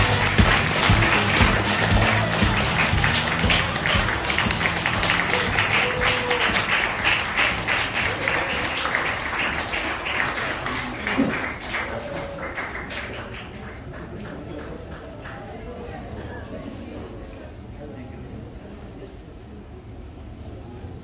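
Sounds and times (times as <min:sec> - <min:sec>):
music: 0:00.0 - 0:08.0
audience clapping: 0:00.0 - 0:15.7.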